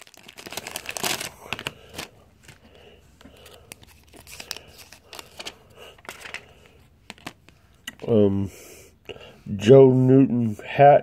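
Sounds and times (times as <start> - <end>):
cards rustling: 0.0 - 7.8.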